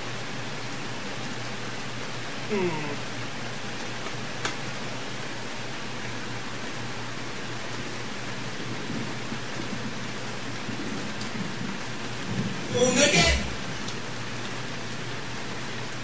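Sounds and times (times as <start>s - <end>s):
background hiss: 11.1s - 16.0s.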